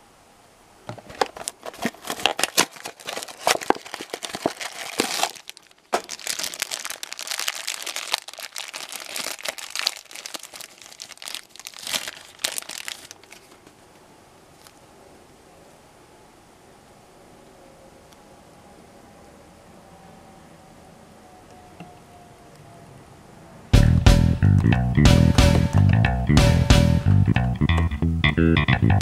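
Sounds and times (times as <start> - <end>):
foil bag crinkling: 0.9 - 13.7.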